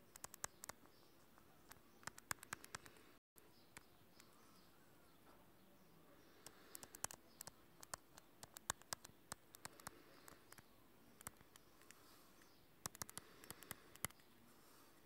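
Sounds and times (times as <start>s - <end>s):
faint room hiss: 0.0s - 15.0s.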